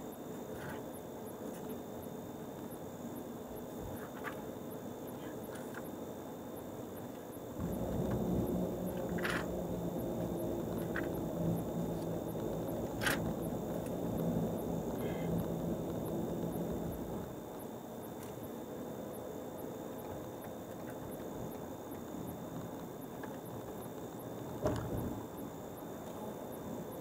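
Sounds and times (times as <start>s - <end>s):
car engine and road noise: 7.6s - 17.4s.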